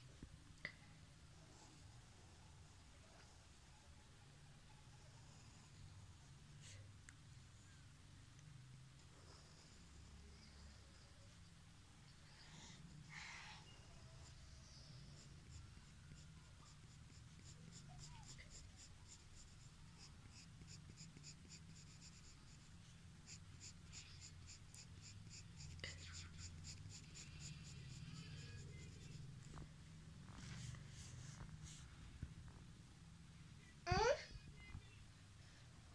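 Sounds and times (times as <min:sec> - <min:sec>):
pencil scratching on paper: 0:14.2 - 0:29.3.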